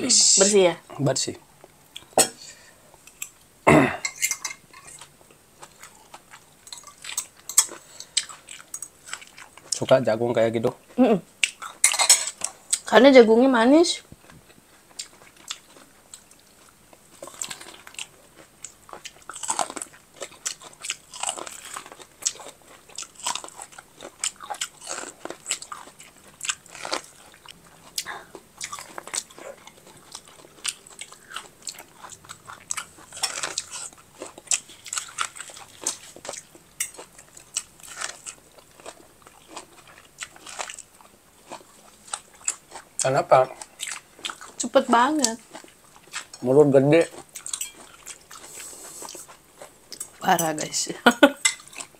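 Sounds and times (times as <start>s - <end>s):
crunchy chewing of corn: 4.8s - 10.0s, 14.2s - 50.2s, 51.6s - 51.9s.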